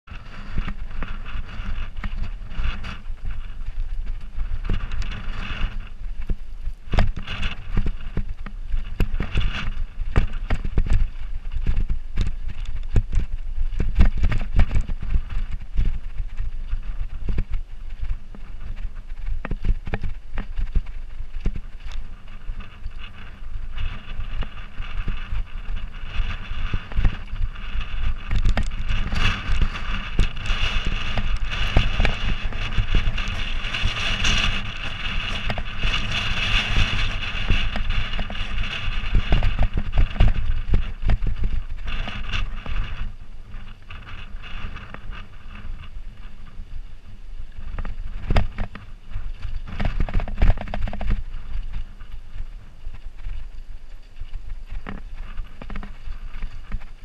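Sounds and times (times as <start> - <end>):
constant low rumble: 0.0 - 57.0
bike rattling over rocks: 0.1 - 57.0
bike tyres crunching on gravel: 0.1 - 57.0.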